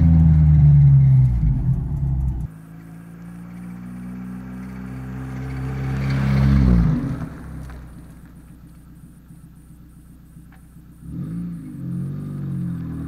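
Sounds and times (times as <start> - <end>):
car driving past: 0.0 - 8.7.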